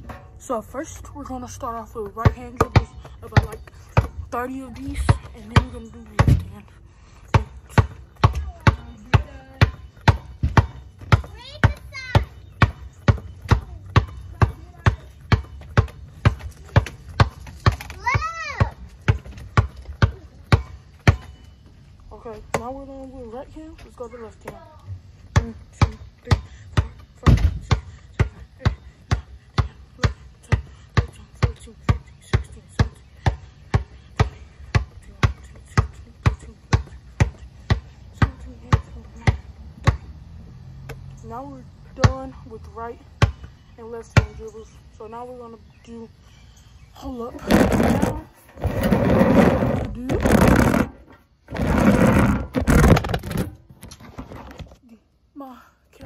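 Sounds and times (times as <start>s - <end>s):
basketball bouncing: 2.0s - 6.7s, 7.3s - 21.5s, 25.3s - 40.1s, 43.2s - 44.5s, 47.4s - 53.8s
phone rubbing on microphone: 47.4s - 54.7s.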